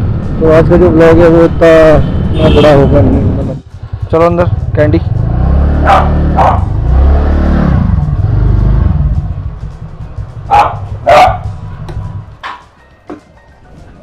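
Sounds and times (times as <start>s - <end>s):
small dog barking: 5.8s - 6.7s, 10.5s - 11.5s.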